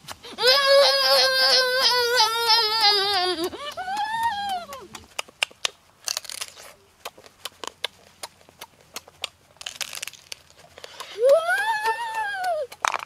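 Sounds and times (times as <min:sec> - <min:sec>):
high-pitched vocal exclamation: 0:00.3 - 0:05.0, 0:11.1 - 0:12.8
crunching and clicking while eating crab: 0:02.8 - 0:13.0.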